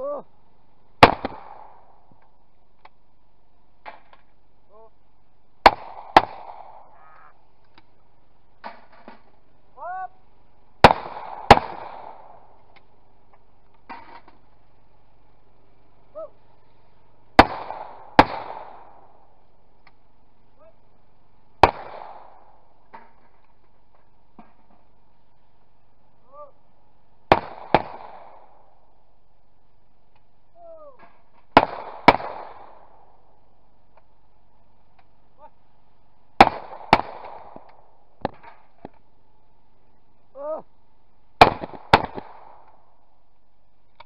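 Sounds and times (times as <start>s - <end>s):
shotgun shots with echo: 1.0s - 1.9s, 5.6s - 7.0s, 10.8s - 12.5s, 17.4s - 19.1s, 21.6s - 22.5s, 27.3s - 28.6s, 31.6s - 33.0s, 36.4s - 38.5s, 41.4s - 42.6s.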